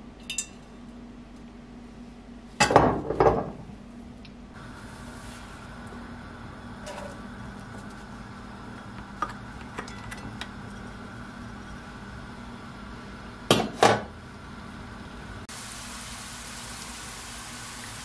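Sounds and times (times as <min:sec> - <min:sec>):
loud knocks of cookware: 0:02.6 - 0:03.6, 0:13.5 - 0:14.1
onion sizzling in hot oil: 0:04.6 - 0:08.5, 0:15.5 - 0:18.0.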